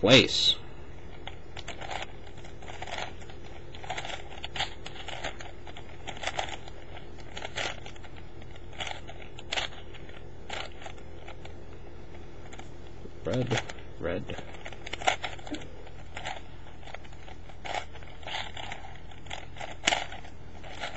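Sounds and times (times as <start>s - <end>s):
puzzle cube clicks and scraping: 1.1s - 11.6s, 13.3s - 20.9s.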